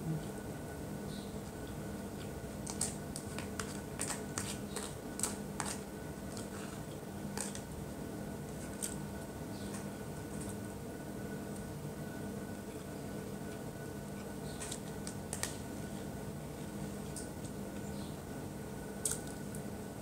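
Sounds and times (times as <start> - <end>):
plastic spoon scraping a cup: 3.3 - 6.8.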